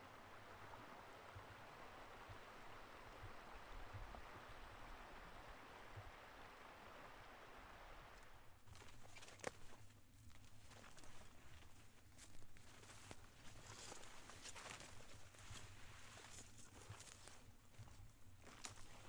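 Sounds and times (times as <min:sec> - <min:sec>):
wind rumble on microphone: 0:00.0 - 0:08.4
faint outdoor hiss: 0:00.0 - 0:19.0.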